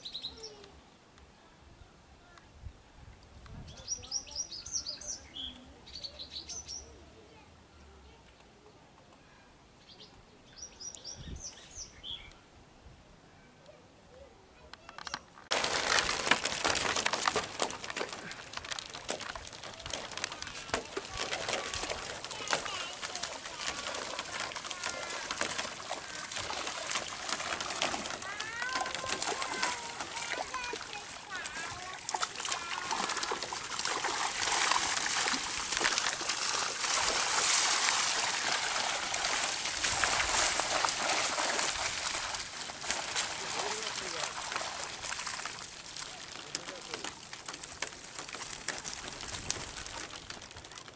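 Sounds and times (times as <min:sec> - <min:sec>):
crackling and rustling: 0:14.7 - 0:50.9
fish splashing in water: 0:15.5 - 0:50.9.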